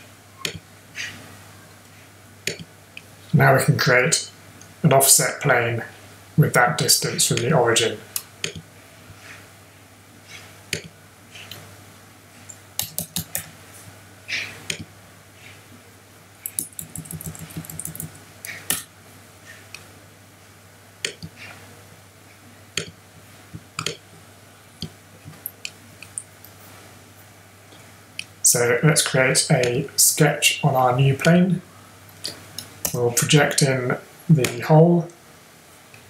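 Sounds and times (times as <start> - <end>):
faint low hum: 0.0 - 36.0
keyboard typing: 12.8 - 13.5, 16.4 - 18.8.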